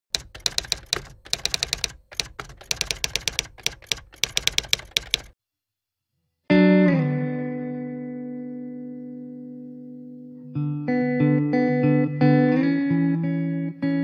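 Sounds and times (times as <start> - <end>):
rapid keyboard key clicks: 0.1 - 5.4.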